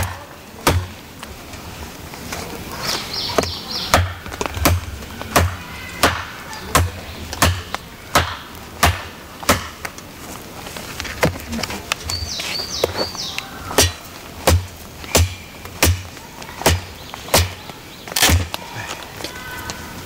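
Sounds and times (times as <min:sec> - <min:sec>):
bird chirping: 0:02.7 - 0:08.6, 0:11.6 - 0:14.2, 0:16.5 - 0:18.4
knife chopping into branch: 0:03.4 - 0:09.9, 0:13.7 - 0:17.6, 0:18.2 - 0:18.6.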